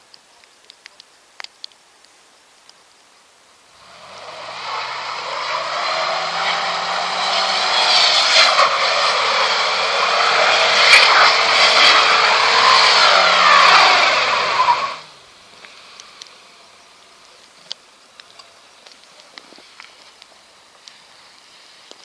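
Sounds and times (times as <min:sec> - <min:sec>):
tyres churning through snow: 0:03.7 - 0:16.5
engine running under load: 0:03.8 - 0:16.7.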